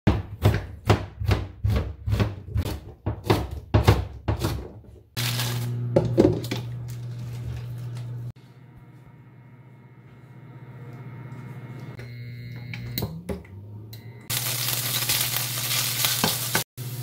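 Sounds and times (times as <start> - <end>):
knife chopping on plastic board: 0.1 - 4.8.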